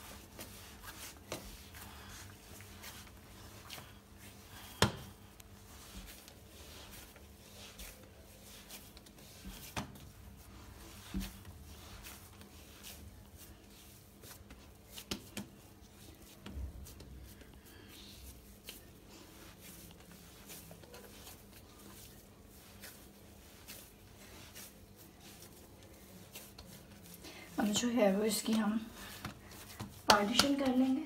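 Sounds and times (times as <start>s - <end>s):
hands kneading dough: 0.0s - 31.0s.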